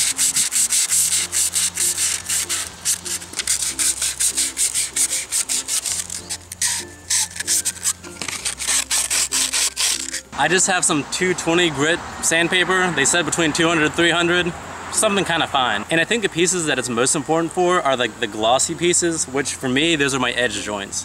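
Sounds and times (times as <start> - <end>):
sandpaper scratching plastic pipe: 0.0 - 10.6.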